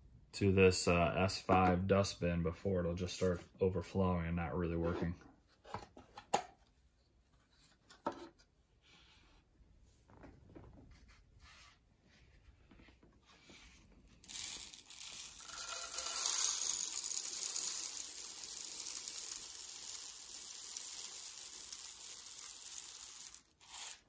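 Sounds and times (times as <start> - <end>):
rice pouring into plastic bin: 14.2 - 23.9.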